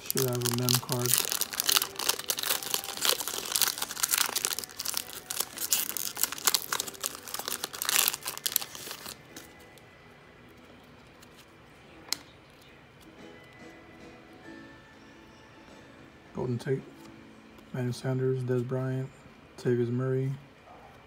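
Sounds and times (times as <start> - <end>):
foil wrapper crinkling and tearing: 0.0 - 9.8.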